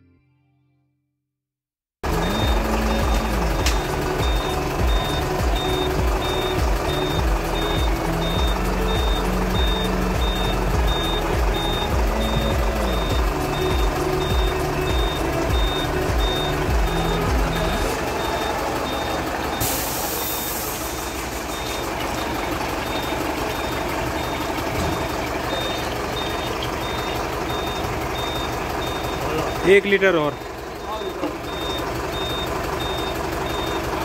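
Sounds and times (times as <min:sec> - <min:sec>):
low music notes: 0:02.0 - 0:19.5
reversing alarm beeping: 0:02.1 - 0:34.0
air hissing: 0:19.6 - 0:21.8.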